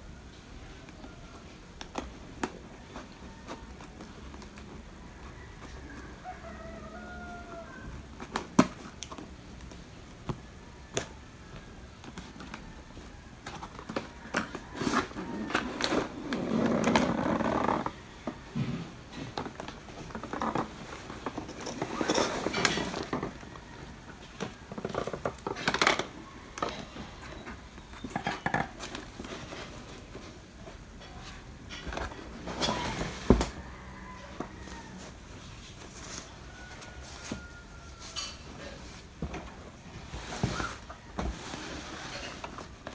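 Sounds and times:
cardboard scraping and rustling: 11.8 - 42.9.

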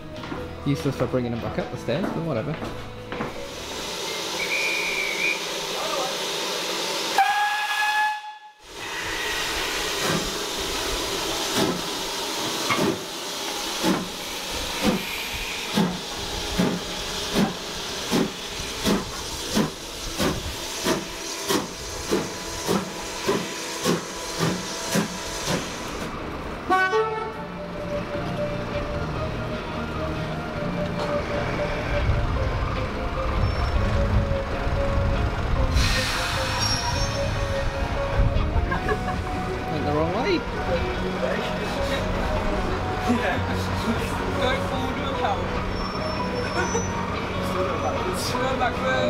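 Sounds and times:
steam hiss: 3.4 - 7.6, 8.6 - 26.1, 35.7 - 37.3
steam locomotive exhaust chuffs: 3.4 - 26.6, 35.3 - 37.9
steam locomotive whistle: 4.0 - 5.8, 7.1 - 10.2, 26.7 - 27.4, 35.7 - 37.5
short high whistle blast: 4.1 - 5.5, 7.2 - 8.6.

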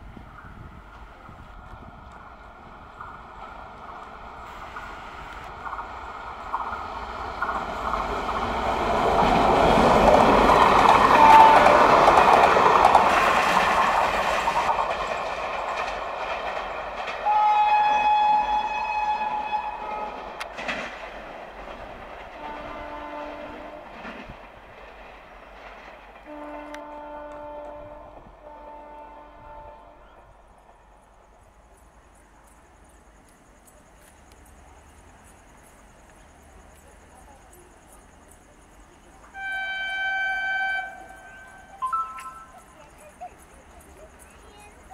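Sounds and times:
train wheels clattering on rails: 0.1 - 29.0, 30.3 - 44.9
locomotive horn blasts: 11.1 - 12.4, 17.2 - 20.2, 22.4 - 23.8, 26.3 - 30.1, 39.3 - 42.5.

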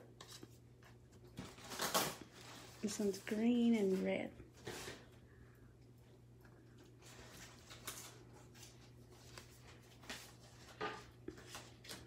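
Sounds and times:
low steady hum: 0.0 - 12.0
paper cards rustling: 7.2 - 12.0.

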